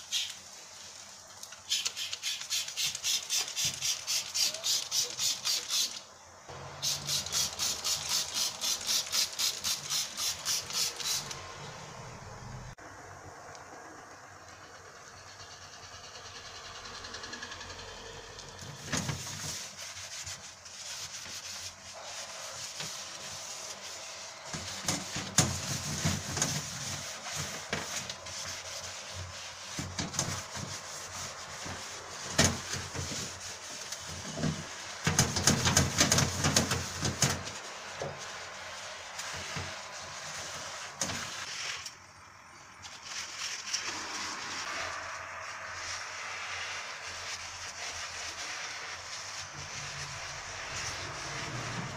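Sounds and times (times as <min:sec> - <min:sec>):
hand scrubbing oven interior: 0:06.6 - 0:11.5, 0:18.7 - 0:41.9, 0:45.8 - 0:51.9.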